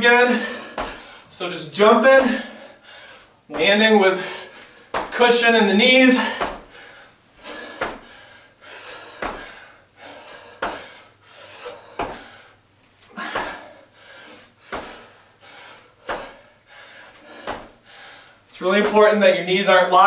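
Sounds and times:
feet thudding on floor: 0.6 - 1.2, 3.5 - 3.8, 4.6 - 5.3, 6.2 - 8.2, 9.0 - 9.6, 10.4 - 11.0, 11.7 - 12.4, 13.2 - 13.7, 14.6 - 15.1, 16.0 - 16.4, 17.2 - 17.9.

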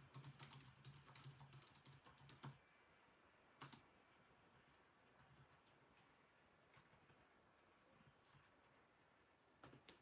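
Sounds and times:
computer keyboard typing: 0.0 - 2.6, 3.6 - 3.9.

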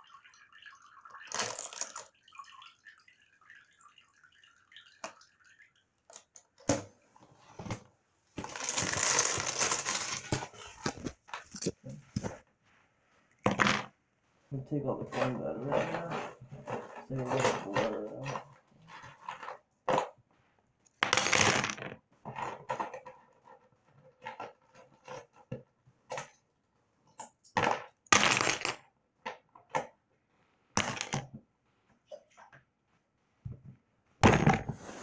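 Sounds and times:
coins clinking and rattling: 8.4 - 10.8.

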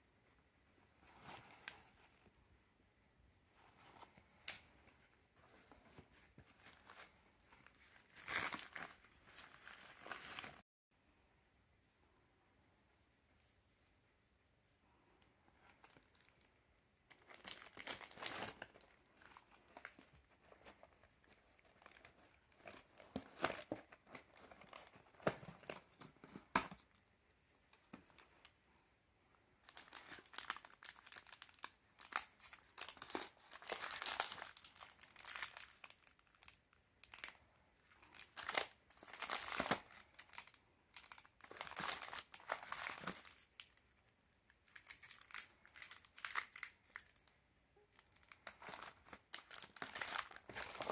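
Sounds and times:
plastic wrapping crinkling: 17.1 - 27.0, 29.7 - 43.8, 44.6 - 47.3, 47.9 - 50.9.

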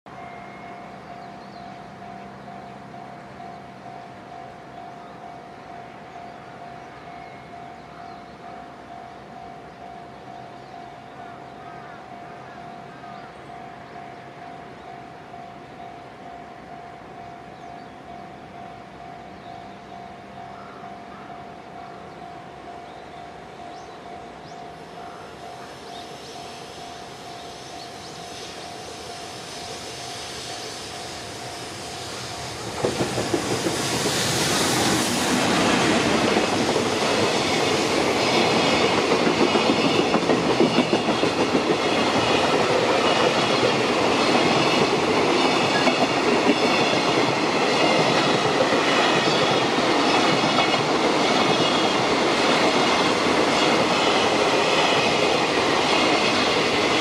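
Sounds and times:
electric locomotive approaching: 0.1 - 57.0
train wheels clacking over rail joints: 32.4 - 57.0.

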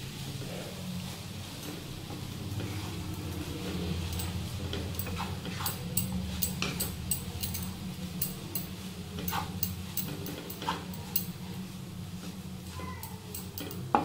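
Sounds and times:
steady low hum: 0.0 - 14.0
spatula scraping a pan: 2.5 - 5.9, 9.2 - 9.6.

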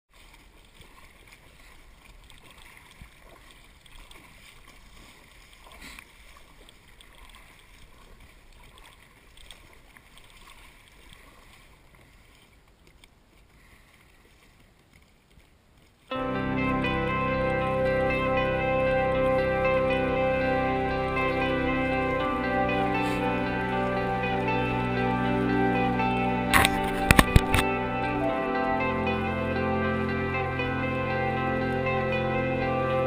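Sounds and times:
kayak paddle strokes: 0.1 - 16.1, 26.5 - 27.8
water splashing against hull: 0.1 - 29.8
music: 16.1 - 33.0.

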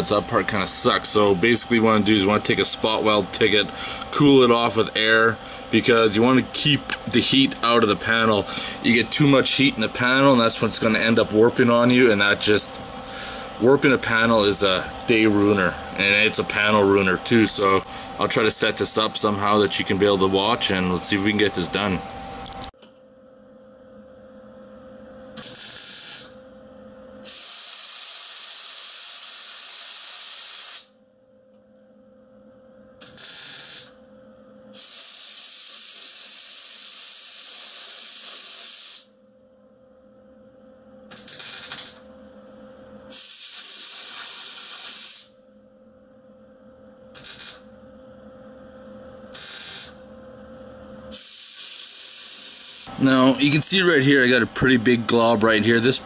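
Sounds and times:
faint steady hum: 0.0 - 28.1, 37.6 - 56.0
welder tack welds: 25.4 - 26.4, 27.2 - 31.0, 33.0 - 34.0, 34.7 - 39.1, 41.1 - 42.0, 43.1 - 45.4, 47.1 - 47.6, 49.3 - 50.0, 51.1 - 52.9
compressed air hissing: 27.3 - 30.9, 34.8 - 39.1, 43.1 - 45.3, 51.1 - 52.9.

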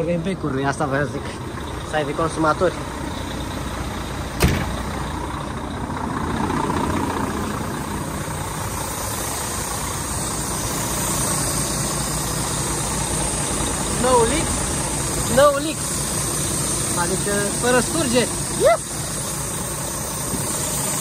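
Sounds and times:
diesel engine idling: 0.0 - 21.0
sharp knock: 4.4 - 4.8.

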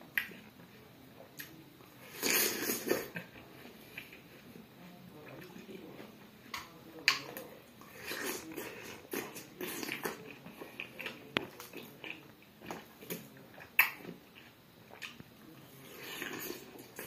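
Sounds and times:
person chewing watermelon: 5.2 - 17.0.

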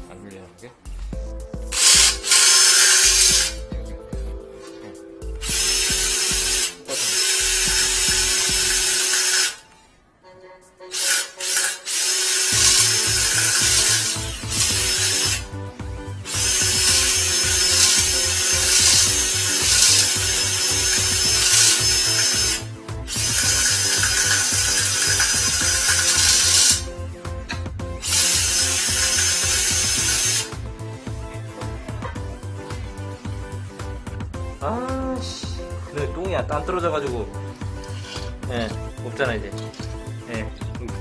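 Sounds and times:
cordless drill spinning drain cable: 1.8 - 3.6, 5.5 - 9.6, 10.9 - 15.5, 16.3 - 26.9, 28.0 - 30.5.

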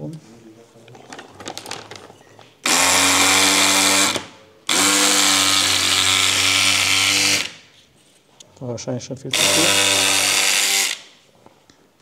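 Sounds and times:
electric fabric cutter motor buzz: 2.7 - 7.5, 9.4 - 11.0.

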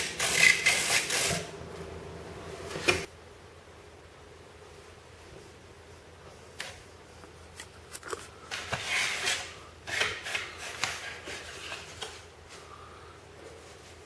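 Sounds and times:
handling rubbing and scuffing: 13.4 - 14.0.

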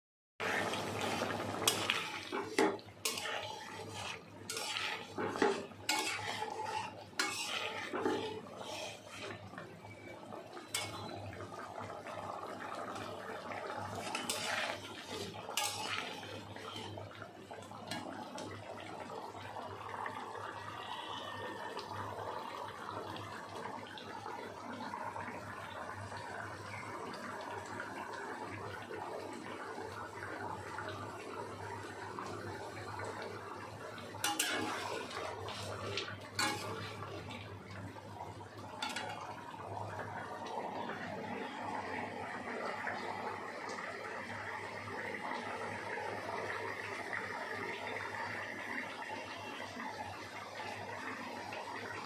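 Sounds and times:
metal spatula scraping a pan: 0.4 - 11.5, 13.9 - 17.0, 34.2 - 37.4, 38.8 - 39.3
gravy simmering: 0.4 - 52.0.

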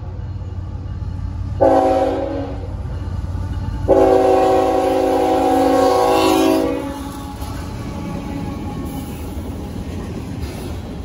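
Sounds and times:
low rumble of train engine: 0.0 - 11.0
locomotive chime horn blasts: 1.6 - 2.8, 3.8 - 9.2.

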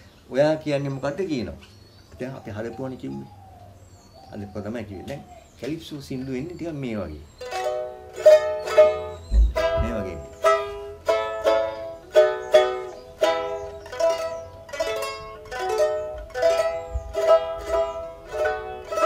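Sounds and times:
small string instrument strummed: 7.4 - 19.0.

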